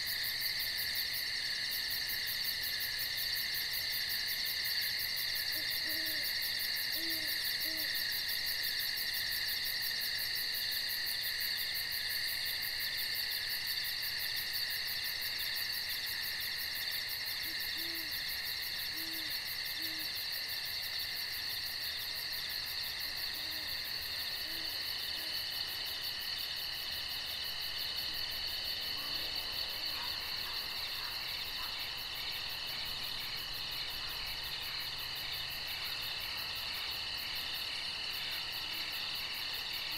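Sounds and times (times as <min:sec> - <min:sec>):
night insects trilling: 0:00.0 - 0:39.9
owl hooting: 0:05.5 - 0:06.3, 0:06.9 - 0:08.0, 0:17.4 - 0:18.2, 0:18.9 - 0:20.1, 0:24.4 - 0:25.4.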